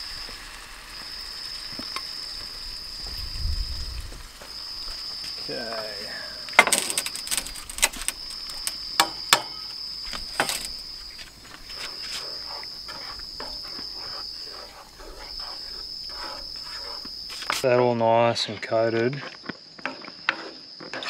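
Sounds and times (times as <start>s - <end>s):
insects trilling: 0.0s - 21.0s
spatula knocking in frying pan: 9.0s - 9.7s
spatula scraping frying pan: 10.2s - 17.6s, 19.2s - 21.0s.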